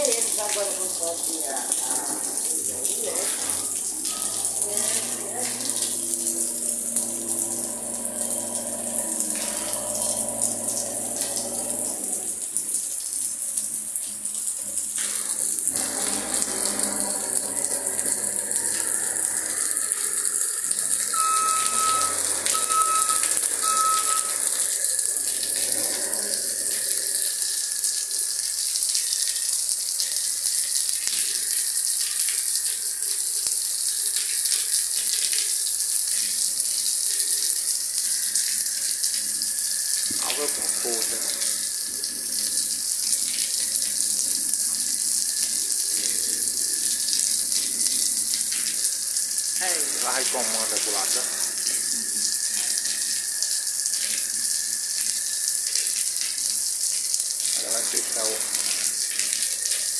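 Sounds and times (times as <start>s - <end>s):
heavy rain: 0.0s - 59.9s
short beeps: 21.1s - 24.6s.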